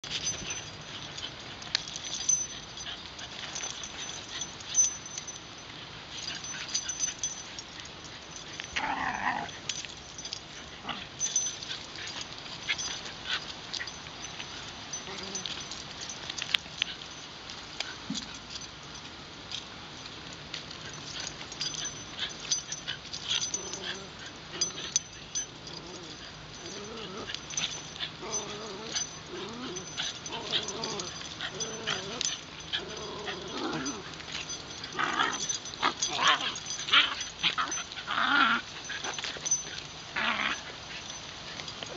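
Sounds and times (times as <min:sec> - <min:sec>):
dogs whimpering and yipping: 0:20.8 - 0:41.9.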